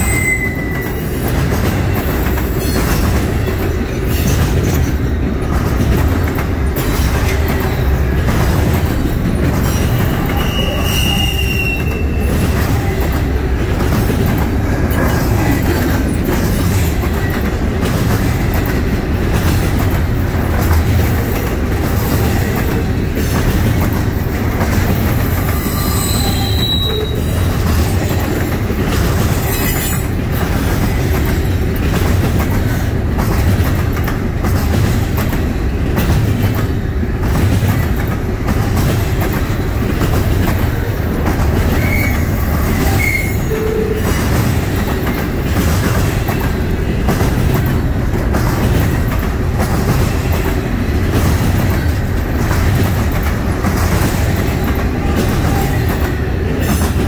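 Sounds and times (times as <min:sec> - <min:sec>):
high-pitched wheel squeals: 0:00.0 - 0:01.0, 0:10.3 - 0:12.3, 0:25.5 - 0:27.4, 0:41.7 - 0:44.0
train wheels rumbling on rails: 0:00.0 - 0:57.0
wheels clicking over rail joints: 0:00.6 - 0:57.0.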